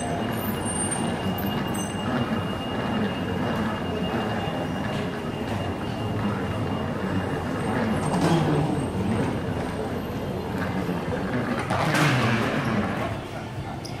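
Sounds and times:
moving walkway rumbling: 0.0s - 14.0s
people's voices: 0.0s - 14.0s.

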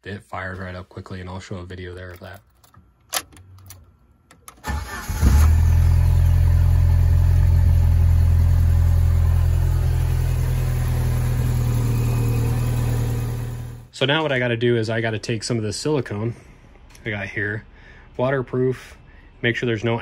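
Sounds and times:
car engine cranking: 2.5s - 13.8s
car engine idling: 4.6s - 13.9s.

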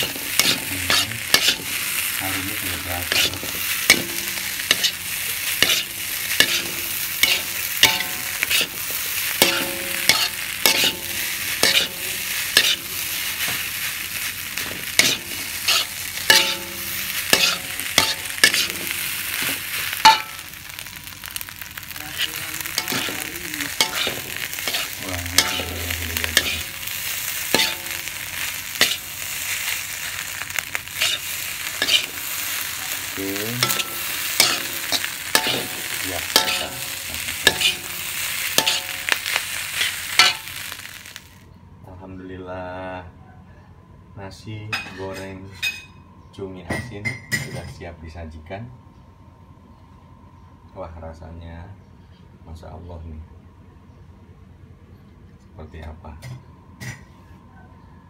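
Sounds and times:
metal spatula scraping a wok: 0.0s - 20.4s, 22.2s - 40.8s
rice sizzling in a wok: 0.0s - 41.5s.

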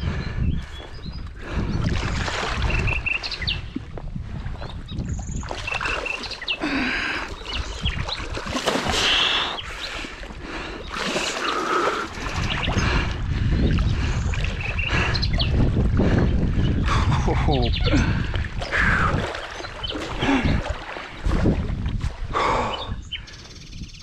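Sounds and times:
catfish thrashing and splashing water: 1.9s - 3.2s, 5.2s - 14.8s, 18.4s - 21.9s
bird chirps: 2.7s - 3.8s.

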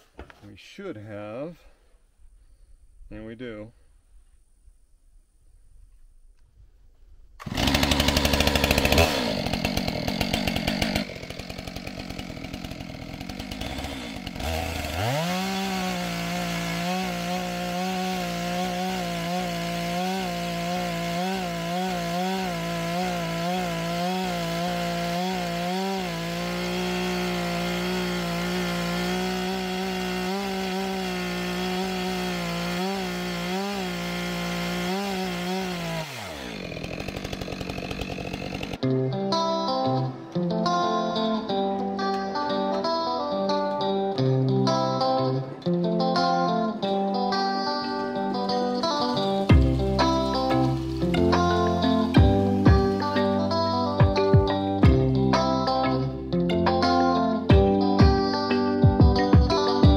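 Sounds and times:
chainsaw cutting wood: 7.4s - 38.9s, 47.8s - 59.9s.

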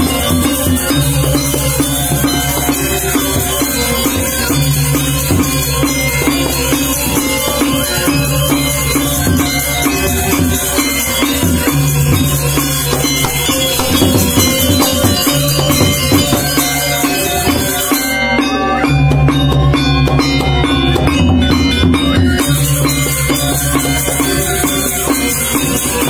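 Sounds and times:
cymbal shimmer: 0.0s - 20.3s
metallophones ringing: 0.0s - 26.0s.

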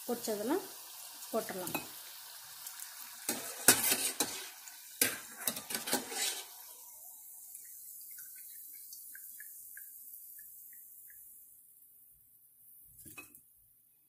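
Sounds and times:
oil sizzling with pops: 0.0s - 14.0s
skimmer scraping metal pot: 3.3s - 6.6s.

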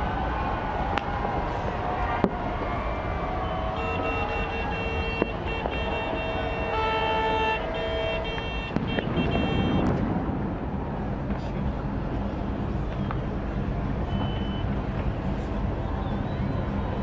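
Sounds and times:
horns sounding steady tones: 2.9s - 9.9s, 12.4s - 17.0s
background rumble: 7.6s - 17.0s.

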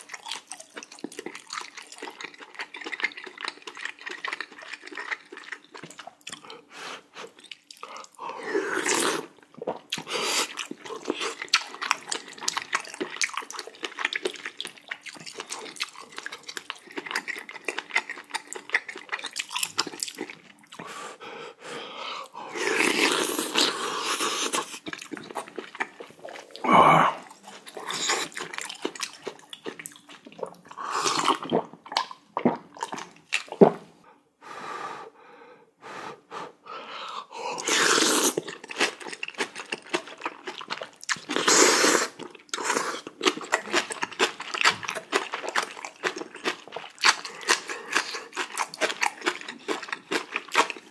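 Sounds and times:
chewing: 0.0s - 21.0s, 22.6s - 33.6s, 37.6s - 50.9s
slurping noodles: 6.5s - 13.0s, 22.3s - 28.8s, 30.4s - 31.7s, 37.2s - 39.0s, 41.2s - 44.3s.

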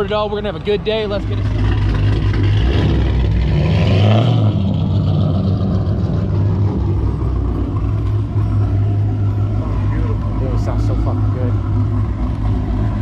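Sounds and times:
car engine rumbling: 0.0s - 13.0s.

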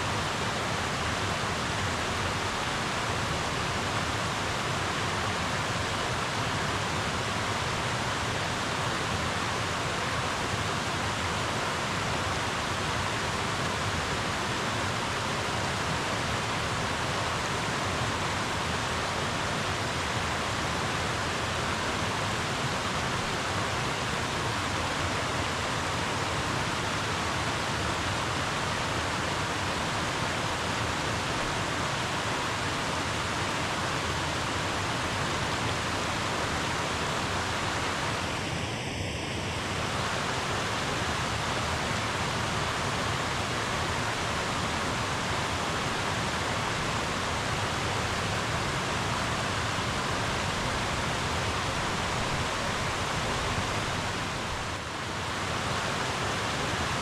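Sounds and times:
river water flowing: 0.0s - 57.0s.

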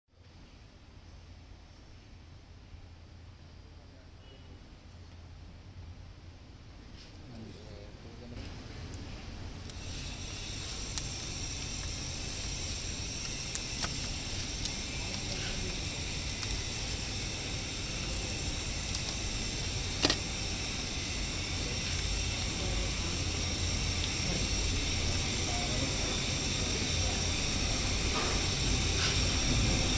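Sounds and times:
steady hiss: 6.8s - 29.9s
tape liner peeling with clicks: 9.6s - 17.1s.

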